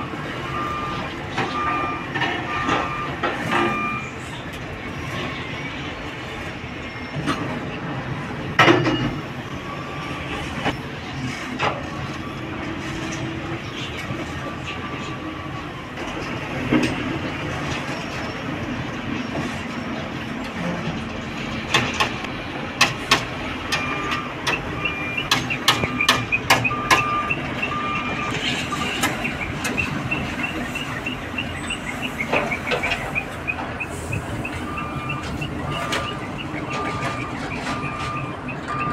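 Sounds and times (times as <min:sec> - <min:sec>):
truck reversing beeper: 0:00.0 - 0:38.9
metal clanks and knocks: 0:08.6 - 0:09.2, 0:20.4 - 0:27.4.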